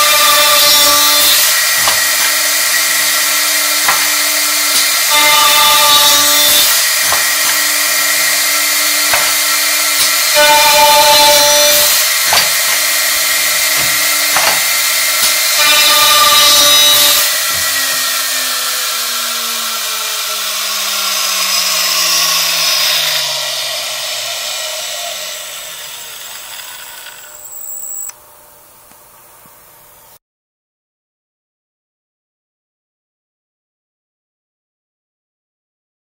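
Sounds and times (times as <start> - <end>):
router spindle motor whining: 0.0 - 28.2
sharp knocks: 1.8 - 18.1.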